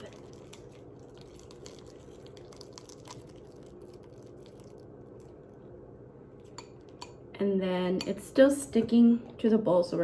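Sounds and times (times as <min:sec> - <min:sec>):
slime squelching: 0:00.0 - 0:05.8.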